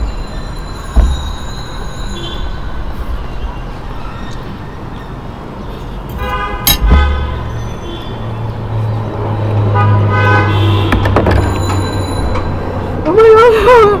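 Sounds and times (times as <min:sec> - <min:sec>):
street traffic: 0:00.0 - 0:14.0
car horn: 0:06.1 - 0:08.1, 0:09.7 - 0:11.7.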